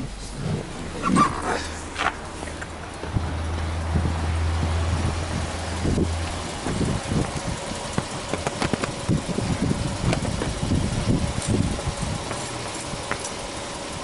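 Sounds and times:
car engine idling: 0:00.0 - 0:14.0
low rumbles: 0:00.0 - 0:14.0.

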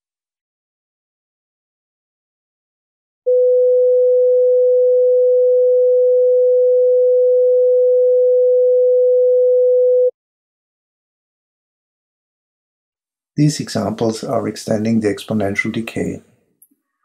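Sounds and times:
steady pure sine tone: 0:03.3 - 0:10.1.

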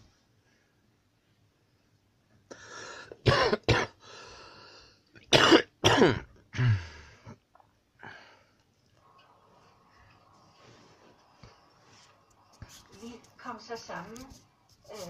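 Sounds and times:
person breathing in: 0:02.5 - 0:03.2, 0:04.0 - 0:05.0, 0:06.6 - 0:07.4
person coughing: 0:03.2 - 0:04.0, 0:05.2 - 0:06.9.

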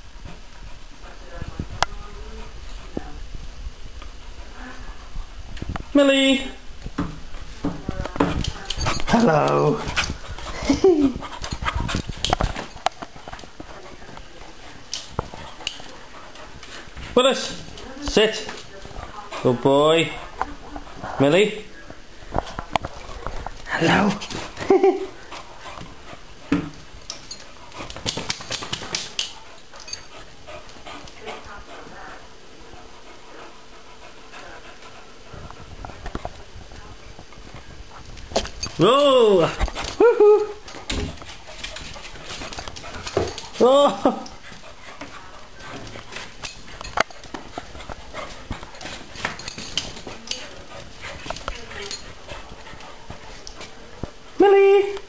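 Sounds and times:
dog claws skittering on tiles: 0:06.8 - 0:19.4, 0:22.2 - 0:31.6, 0:34.8 - 0:54.4
dog claws clicking on tiles: 0:14.9 - 0:16.0, 0:26.7 - 0:30.2, 0:44.3 - 0:53.8.

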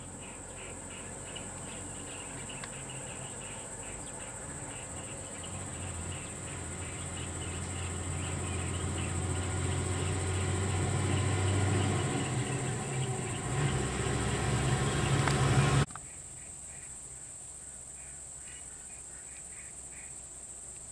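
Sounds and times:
diesel lorry passing: 0:00.0 - 0:15.9
high insect drone: 0:00.0 - 0:17.6.

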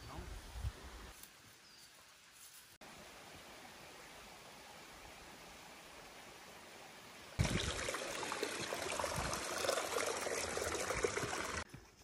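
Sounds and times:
faint forest ambience: 0:00.0 - 0:09.0
stream splashing over rocks: 0:07.4 - 0:11.7.

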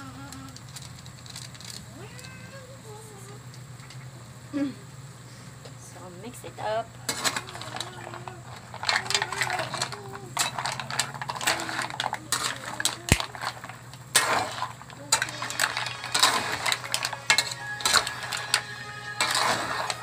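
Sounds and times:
mussel shells clattering in pot: 0:00.4 - 0:02.3, 0:07.0 - 0:20.0.

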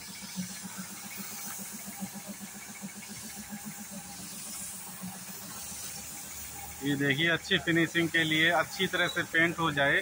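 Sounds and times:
motor running in low pulse: 0:00.0 - 0:06.8
spray gun hissing: 0:00.0 - 0:10.0.

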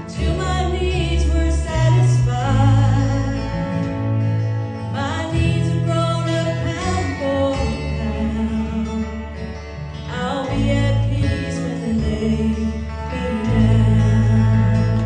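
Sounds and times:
acoustic guitar: 0:00.0 - 0:15.0
women singing gospel: 0:00.1 - 0:03.8, 0:10.1 - 0:15.0.

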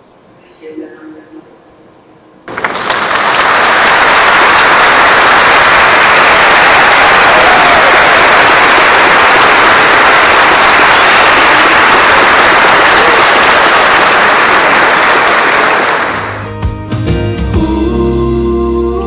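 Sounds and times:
guests applauding: 0:02.5 - 0:16.5.

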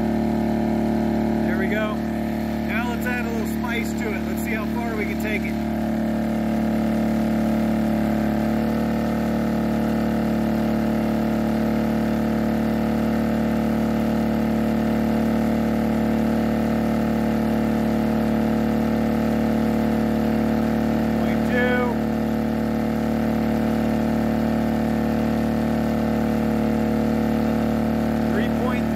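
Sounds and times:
generator humming: 0:00.0 - 0:28.9.

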